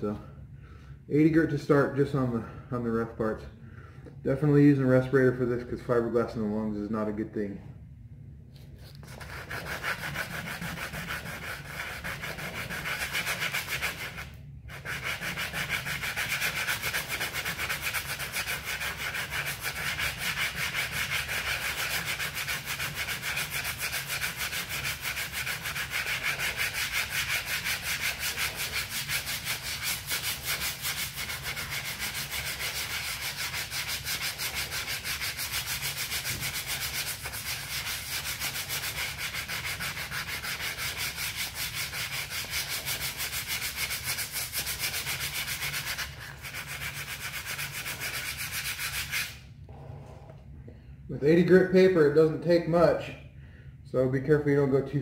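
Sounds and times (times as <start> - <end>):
sandpaper rasping on surface: 8.8 - 49.4.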